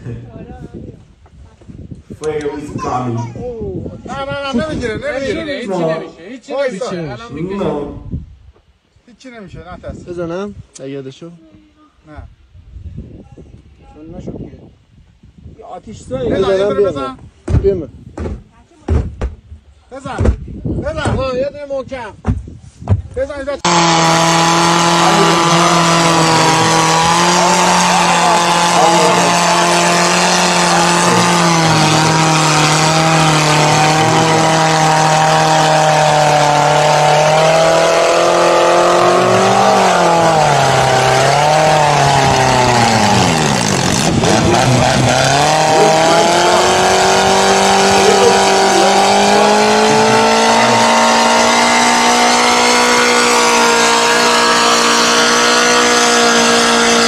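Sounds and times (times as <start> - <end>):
truck engine revving high: 23.6 - 57.0.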